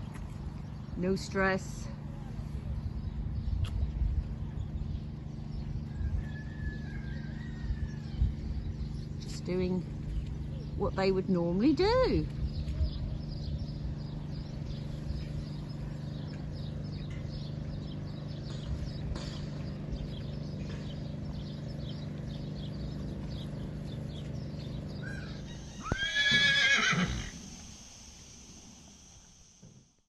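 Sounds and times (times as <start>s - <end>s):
steady low hum: 0.0s - 30.0s
horse whinnying: 25.3s - 27.4s.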